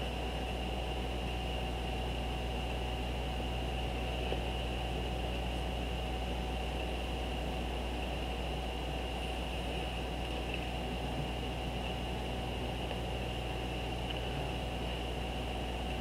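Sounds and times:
electrical hum and hiss: 0.0 - 16.0
faint whine tones: 0.0 - 16.0.

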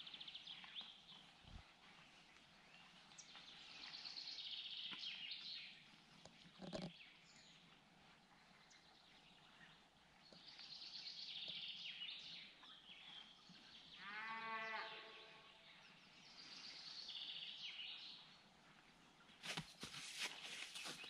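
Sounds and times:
songbirds chirping: 0.0 - 21.0
calf bleating moo: 14.0 - 15.4.

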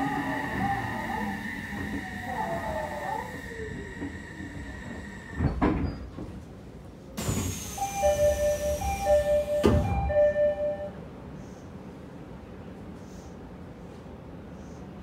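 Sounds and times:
air hiss of doors opening: 7.2 - 10.2.

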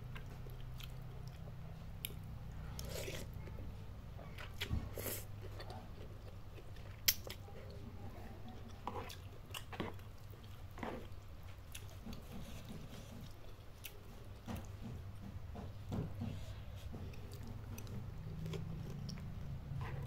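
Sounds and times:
chewing crunchy noodles: 0.1 - 3.6, 8.6 - 14.8, 17.0 - 20.0.

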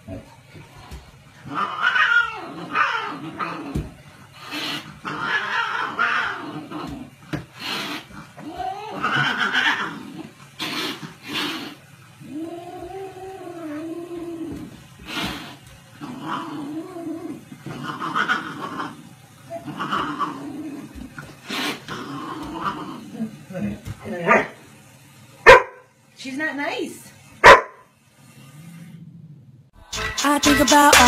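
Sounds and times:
cat hissing and growling: 0.0 - 23.4
cat yowling: 1.5 - 3.4, 5.1 - 6.4.

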